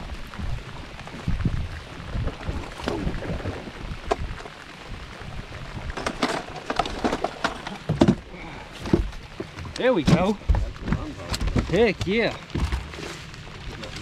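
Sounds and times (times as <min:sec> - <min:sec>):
rain hissing on a lake: 0:00.0 - 0:14.0
knocks and clatters on a boat: 0:02.1 - 0:04.6, 0:05.8 - 0:14.0.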